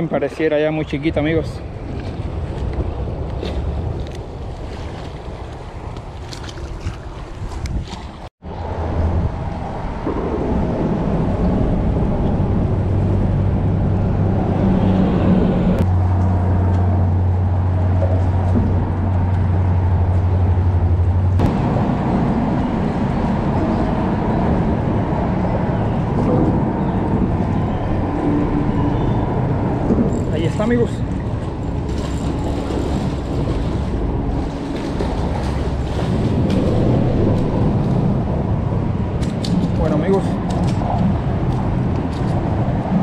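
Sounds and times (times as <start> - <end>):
road traffic rumble: 8.4 - 43.0
deep engine hum: 8.5 - 43.0.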